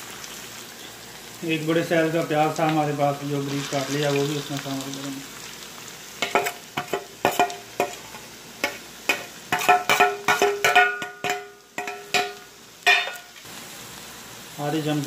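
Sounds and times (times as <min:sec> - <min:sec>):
potatoes sizzling in oil: 0:00.0 - 0:15.0
spoon clinking on steel bowl: 0:08.6 - 0:13.3.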